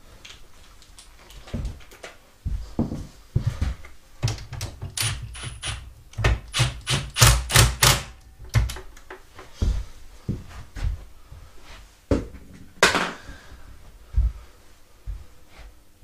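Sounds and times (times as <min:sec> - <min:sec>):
impact driver hammering: 0:06.5 - 0:08.1.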